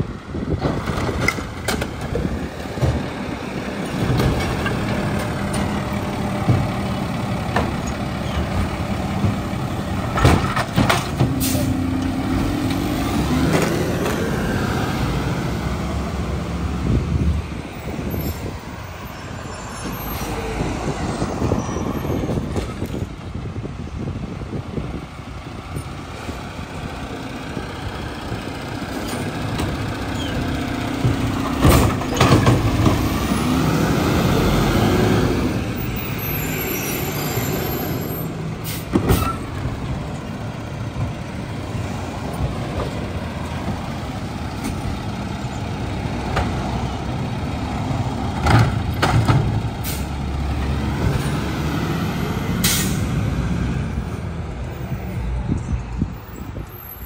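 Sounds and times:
air brake hisses: 52.6s - 53.1s.

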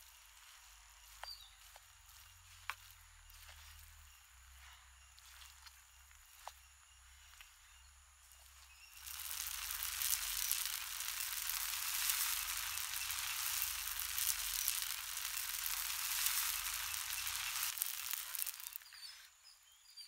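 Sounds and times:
noodles sizzling in a wok: 8.3s - 19.1s.

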